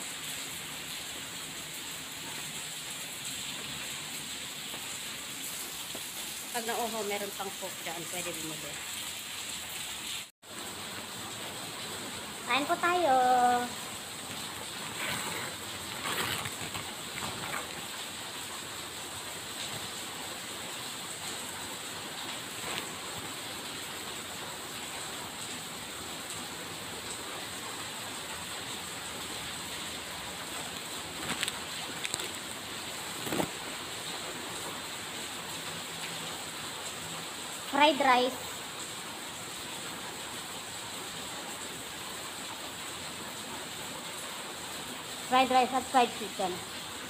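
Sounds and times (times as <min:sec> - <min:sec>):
plastic bag rustling: 0:14.6 - 0:18.0, 0:30.5 - 0:33.7.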